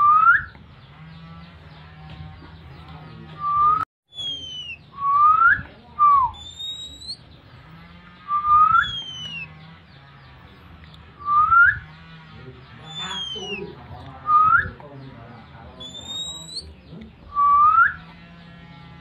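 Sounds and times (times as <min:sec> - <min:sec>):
person whistling bird call: 0:00.0 - 0:00.6, 0:03.4 - 0:07.2, 0:08.3 - 0:09.4, 0:11.2 - 0:11.8, 0:17.4 - 0:18.0.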